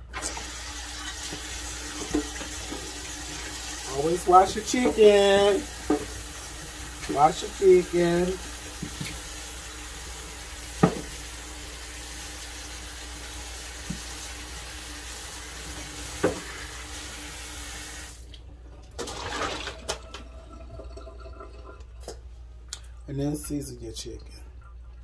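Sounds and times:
faucet running into steel sink: 0:00.1 - 0:18.2.

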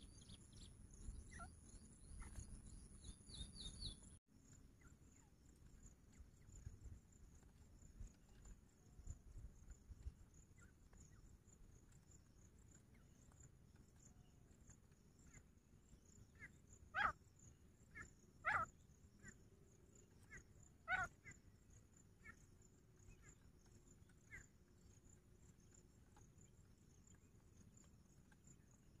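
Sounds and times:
short sharp animal calls: 0:17.0 - 0:17.2, 0:17.9 - 0:19.4, 0:20.3 - 0:21.2.

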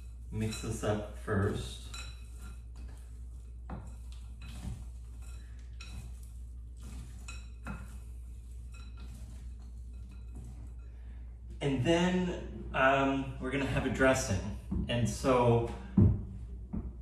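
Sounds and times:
utensil scraping glass bowl: 0:00.0 - 0:11.8
low steady hum: 0:00.0 - 0:17.0.

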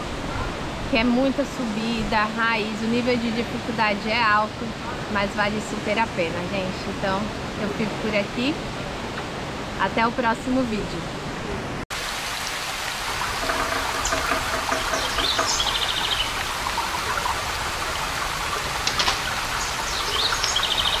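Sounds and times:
running water rushing: 0:00.0 - 0:21.0
birds calling: 0:13.1 - 0:21.0.

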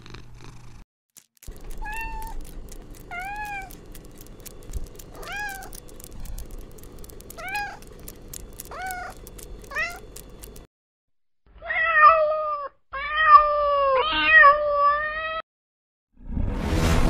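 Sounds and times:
cat meowing: 0:11.6 - 0:15.4.

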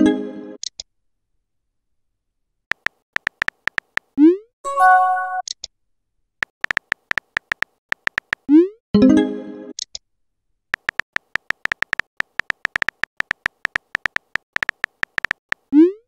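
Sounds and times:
keyboard tap clicks: 0:02.7 - 0:04.1, 0:06.4 - 0:08.5, 0:10.8 - 0:15.6
synthesized chime: 0:04.7 - 0:05.4.

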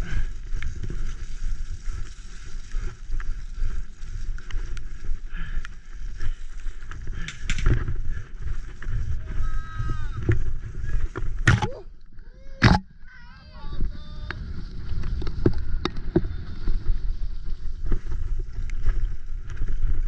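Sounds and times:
bike rattling and knocking: 0:00.1 - 0:09.0
wind buffeting microphone: 0:06.2 - 0:11.9, 0:12.6 - 0:20.0.

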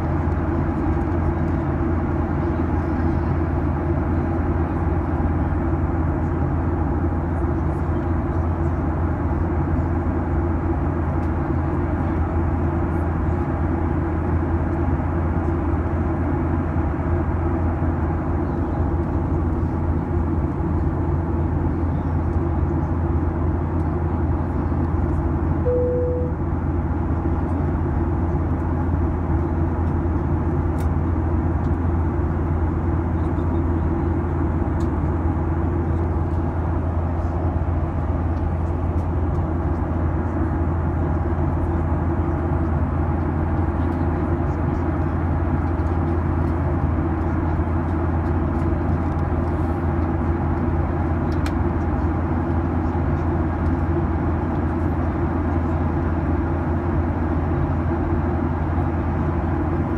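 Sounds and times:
airliner cabin rumble: 0:00.0 - 0:59.9
brief single tone: 0:25.6 - 0:26.4.

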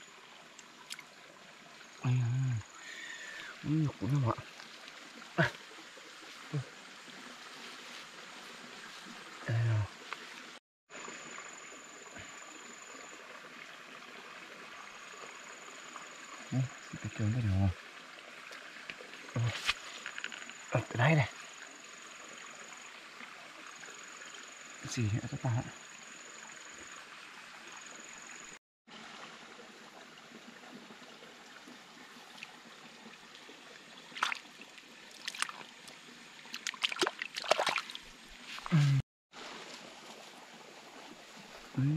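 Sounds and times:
flowing water hiss: 0:00.0 - 0:41.9
water splashes: 0:28.9 - 0:41.9.

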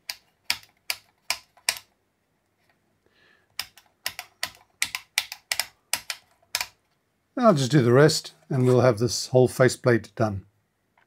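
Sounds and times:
rotary switch clicking: 0:03.6 - 0:06.8.

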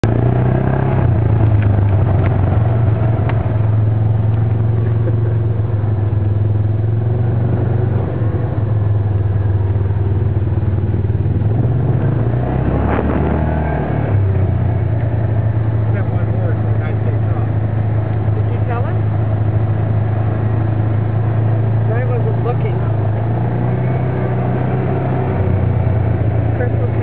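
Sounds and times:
off-road vehicle engine running: 0:00.0 - 0:27.0.

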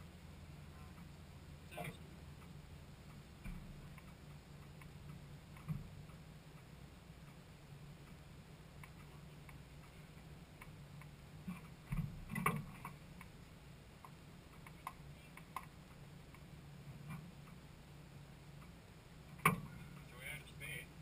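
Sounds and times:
faint low hum: 0:00.0 - 0:21.0.

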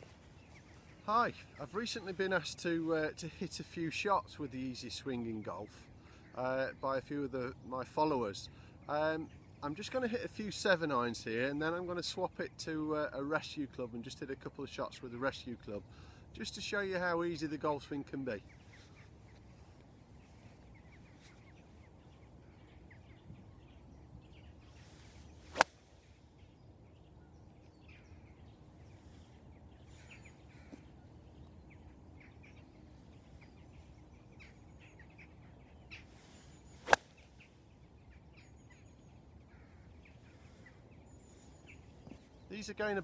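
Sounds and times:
golf club striking ball: 0:25.5 - 0:25.8, 0:36.8 - 0:37.1.

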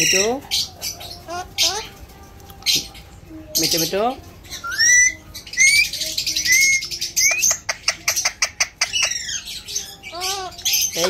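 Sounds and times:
parakeet whistled chirps: 0:04.6 - 0:11.0.

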